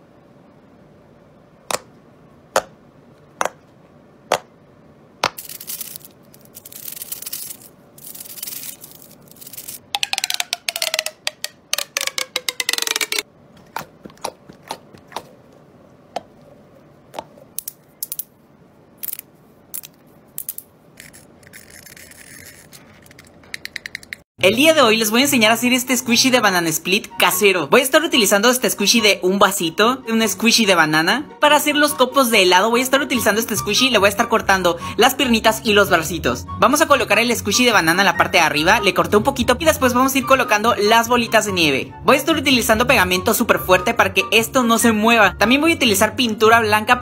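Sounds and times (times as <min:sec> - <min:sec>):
plastic toy pops: 0:09.9 - 0:13.2
pop tube whirring tone: 0:09.9 - 0:13.2.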